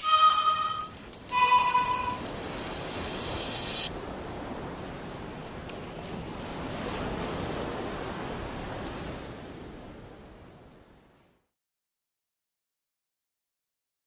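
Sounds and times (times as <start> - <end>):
short burst of music: 0.0 - 3.9
steady rushing noise: 0.0 - 4.0.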